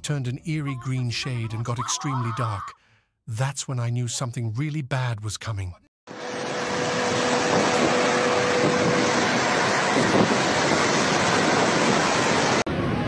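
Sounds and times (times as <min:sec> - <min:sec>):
wind buffeting microphone: 0:07.2 - 0:13.0.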